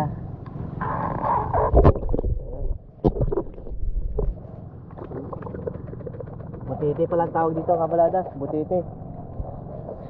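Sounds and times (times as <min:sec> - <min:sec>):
sea water sloshing and gurgling: 0:01.4 - 0:07.4.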